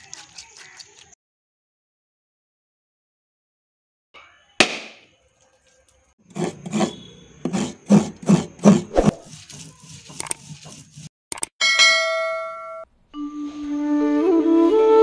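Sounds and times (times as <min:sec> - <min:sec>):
grinding stone rubbing strokes: 0:06.2 - 0:11.1.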